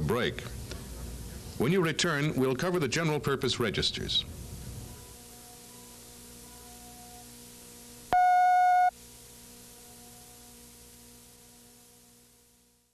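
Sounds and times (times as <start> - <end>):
low steady hum: 0.0 - 12.9
tape hiss: 0.0 - 12.9
electronic beep tone: 8.1 - 8.9.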